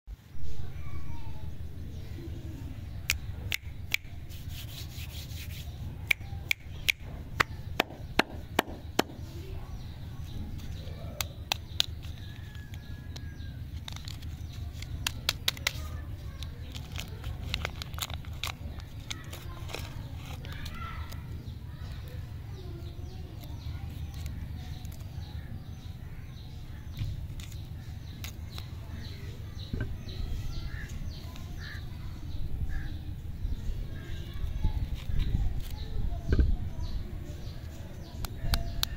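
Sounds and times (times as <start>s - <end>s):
wrappers crinkling: 13.7s - 20.8s.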